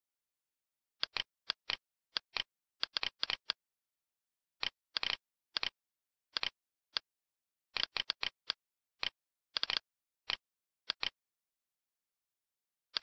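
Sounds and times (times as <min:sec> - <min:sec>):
computer mouse clicking: 0:01.0 - 0:03.6, 0:04.6 - 0:07.1, 0:07.8 - 0:11.2.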